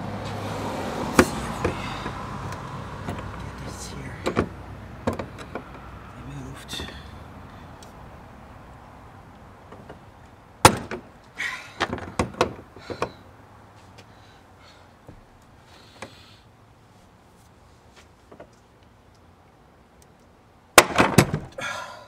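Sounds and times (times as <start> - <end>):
metal knocks and clicks: 1.2 - 3.4, 4.2 - 5.8, 10.6 - 11.1, 11.8 - 13.2.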